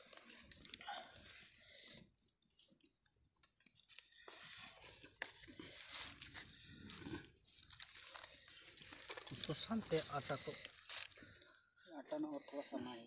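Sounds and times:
hands shaping soft dough: 0.0s - 11.4s.

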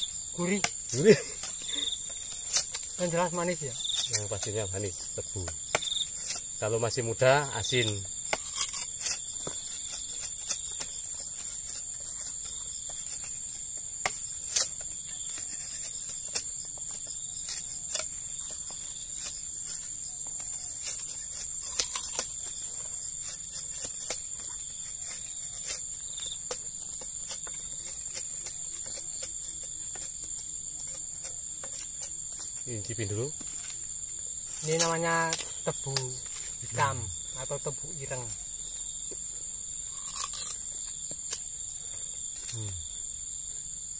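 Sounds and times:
sickle blades cutting sugarcane: 0.0s - 38.4s, 39.9s - 41.6s
insects trilling: 0.0s - 43.9s.

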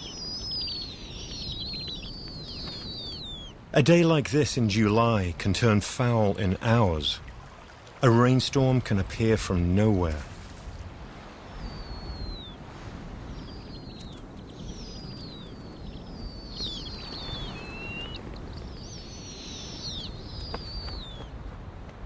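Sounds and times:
owlets squealing calls: 0.0s - 3.6s, 11.5s - 12.6s, 13.3s - 21.3s
low wind rush: 0.0s - 22.0s.

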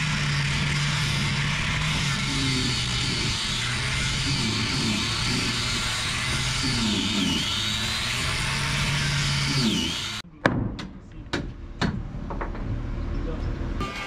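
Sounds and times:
power tool whining: 0.0s - 10.2s.

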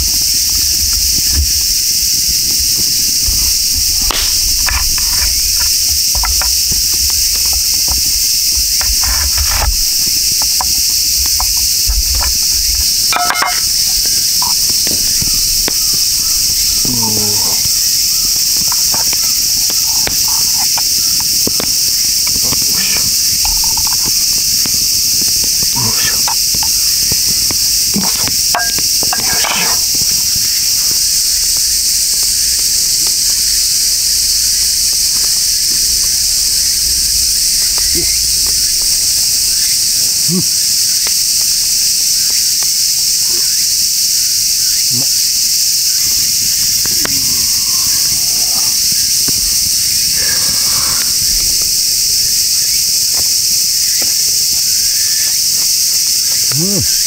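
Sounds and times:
cicadas buzzing: 0.0s - 57.0s.

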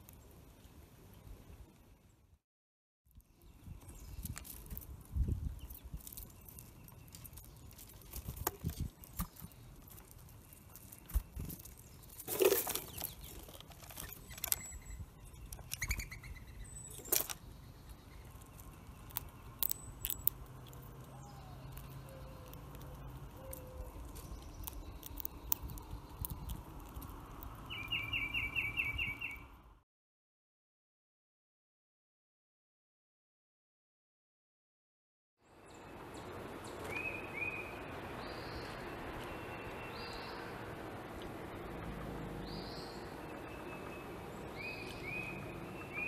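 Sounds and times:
seeds clicking and rustling: 3.9s - 14.8s, 16.8s - 27.8s.

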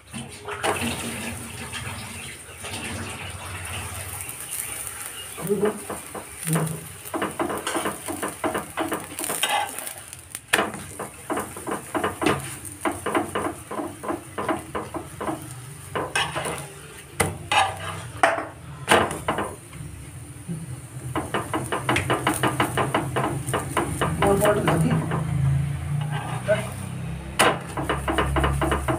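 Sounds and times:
light sizzle: 0.0s - 28.9s
spoon scraping and tapping metal pan: 5.4s - 19.5s, 21.2s - 28.9s.

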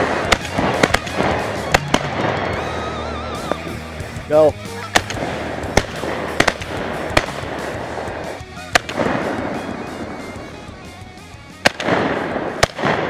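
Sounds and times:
shotgun firing with echo: 0.0s - 2.7s, 4.8s - 10.9s, 11.6s - 13.0s
background music: 0.0s - 13.0s.

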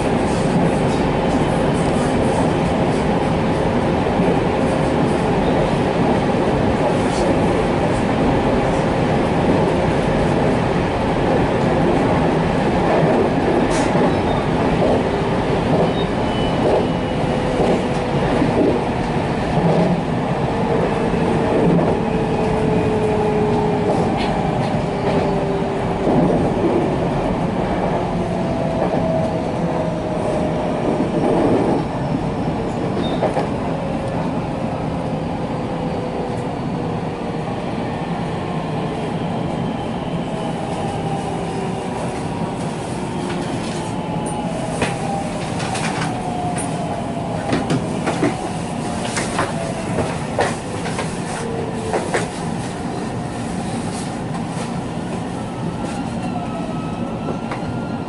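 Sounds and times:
electric train running on rails: 0.0s - 58.0s.

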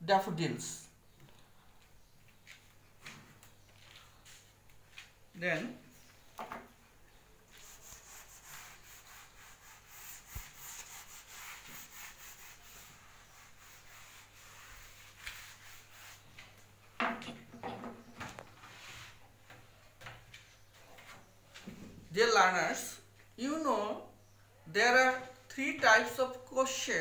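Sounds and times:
dry rubbing on a whiteboard: 7.5s - 16.5s.

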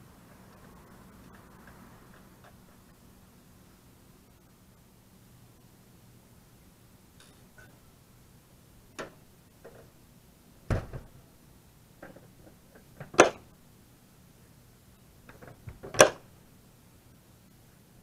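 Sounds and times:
ramp door thudding shut: 10.7s - 11.2s, 15.4s - 16.2s
latches clacking: 12.0s - 13.5s, 15.3s - 16.2s.

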